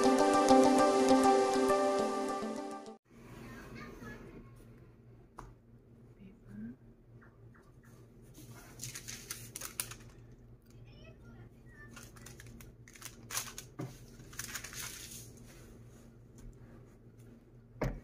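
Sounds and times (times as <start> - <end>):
paper rustling: 8.4 - 10.2, 11.8 - 15.7.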